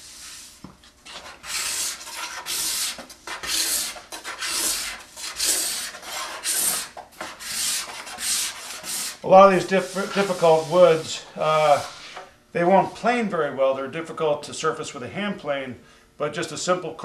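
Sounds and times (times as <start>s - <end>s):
card scraper scraping wood: 1.1s - 10.8s.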